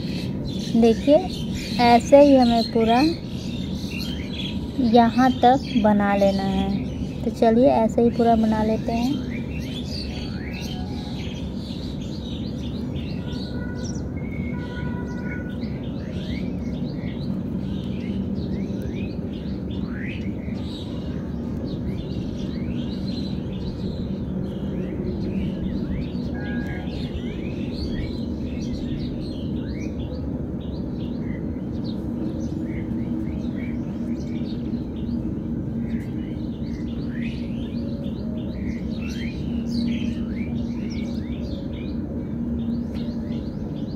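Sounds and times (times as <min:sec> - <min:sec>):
birds chirping: 0:00.0 - 0:43.9
whistled bird notes: 0:24.5 - 0:30.1.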